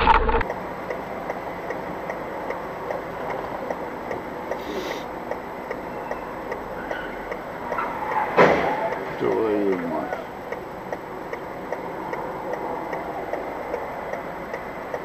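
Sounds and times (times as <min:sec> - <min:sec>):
background noise: 0:00.0 - 0:15.0
light ticks: 0:00.4 - 0:07.9, 0:08.9 - 0:15.0
short hiss: 0:04.6 - 0:05.1.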